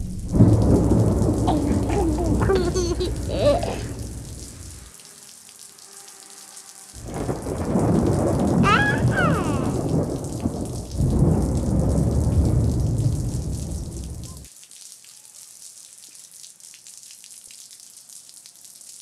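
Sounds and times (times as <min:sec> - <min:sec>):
deep rolling rumbles: 0:00.0 - 0:04.9, 0:07.0 - 0:14.4.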